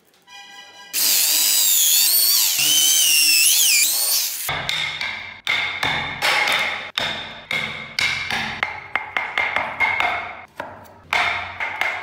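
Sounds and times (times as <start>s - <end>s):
mallet striking wood chisel: 4.5s - 12.0s.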